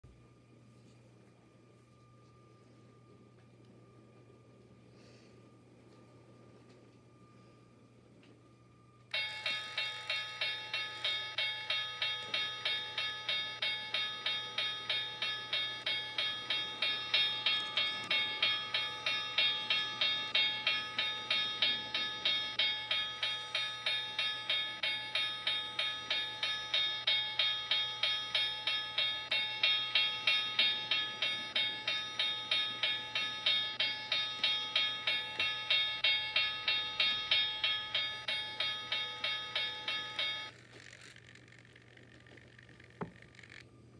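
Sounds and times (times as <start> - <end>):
crossing signal bell ringing: 9.1 - 40.6
toy train rumbling past: 9.1 - 43.6.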